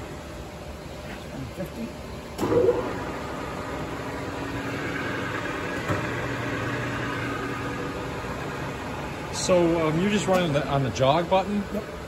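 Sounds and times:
lathe humming with gear whine: 0.0s - 12.0s
lathe starting clunk: 2.4s - 3.2s, 4.8s - 7.7s.

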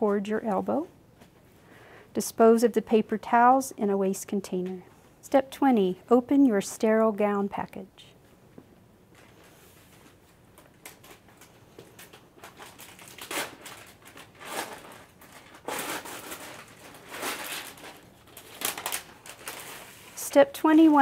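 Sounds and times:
paper wrapping crinkling: 9.1s - 21.0s.

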